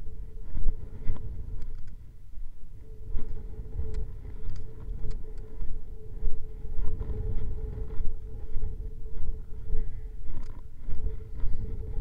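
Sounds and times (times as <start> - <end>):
faint steady hum: 0.0 - 12.0
wind buffeting microphone: 0.0 - 12.0
light ticks: 1.1 - 2.0, 3.3 - 5.8.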